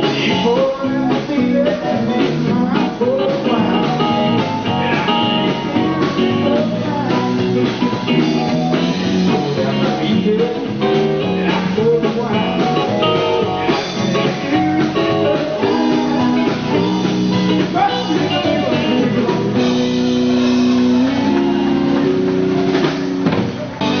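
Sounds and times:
electric guitar slow melody: 0.0 - 24.0.

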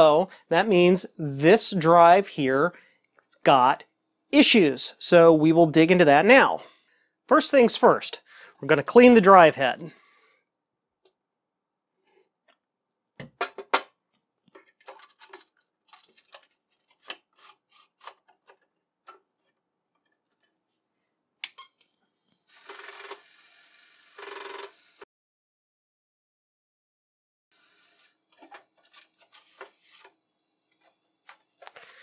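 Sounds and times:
plastic clicks and rattles: 14.5 - 17.2.

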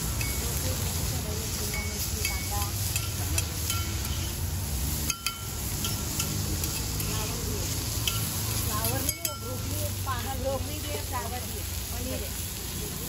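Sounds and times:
food sizzling on a griddle: 0.0 - 13.0.

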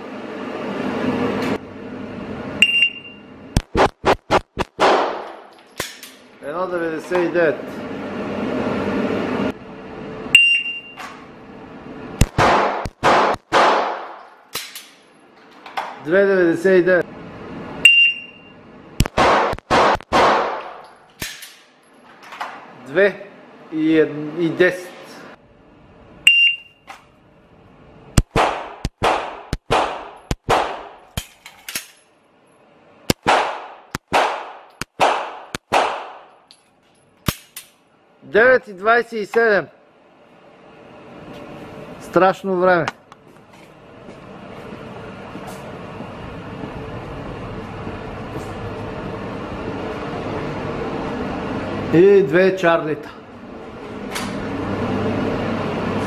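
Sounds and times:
shot timer beep: 2.6 - 3.2, 10.3 - 11.0, 17.8 - 18.6, 26.2 - 26.9
handgun shots echoing indoors: 4.8 - 6.2, 12.3 - 15.0, 19.2 - 21.6, 28.3 - 31.9, 33.2 - 36.3.

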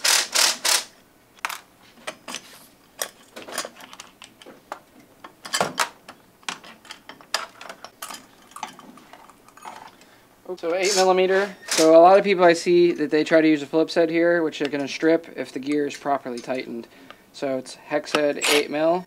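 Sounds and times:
hand tools clinking on metal bench: 6.5 - 10.0.

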